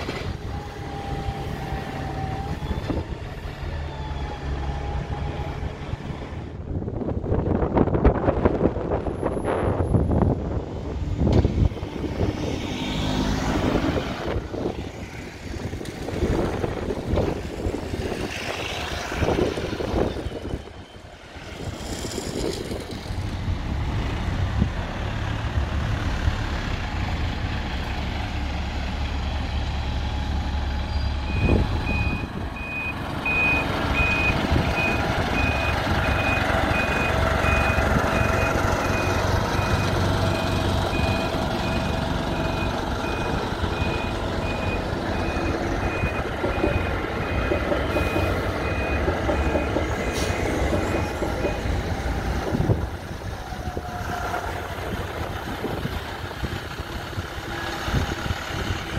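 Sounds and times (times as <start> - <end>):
bus engine humming: 0.0 - 58.9
reversing alarm beeping: 31.2 - 51.8.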